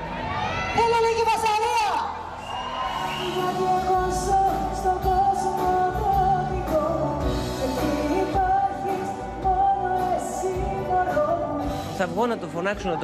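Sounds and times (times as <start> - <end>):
woman singing into a microphone: 3.2 - 13.0.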